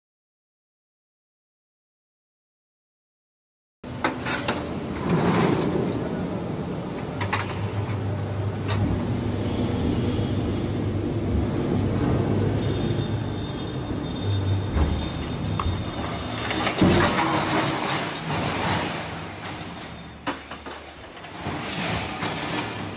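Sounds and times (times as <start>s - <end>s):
thin whine: 7.3s - 16.7s
metal crashing: 14.8s - 22.9s
scrap metal clanking: 14.8s - 22.9s.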